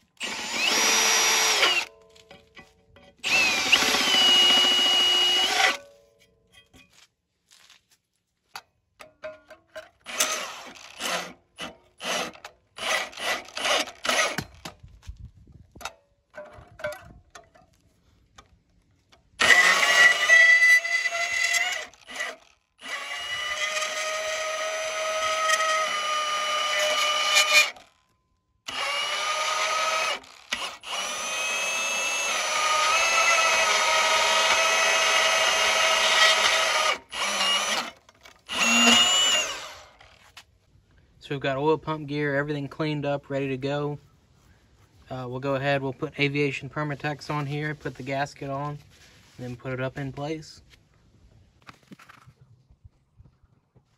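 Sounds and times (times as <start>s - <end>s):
band saw cutting steel: 0.1s - 1.9s, 3.2s - 5.8s, 10.0s - 14.6s, 19.4s - 27.9s, 28.7s - 40.2s
handling clicks and knocks: 8.5s - 10.0s.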